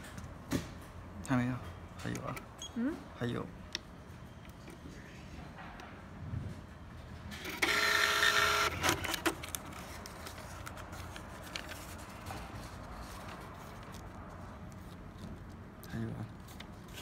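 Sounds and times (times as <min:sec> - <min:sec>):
receipt printer motor whine: 0:07.5 - 0:09.2.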